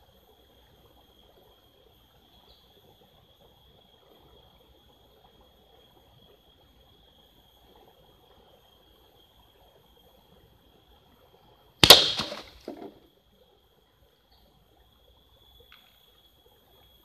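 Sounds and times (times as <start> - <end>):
pellet striking target crack: 11.8 - 13.0
target clattering as it falls: 11.8 - 13.0.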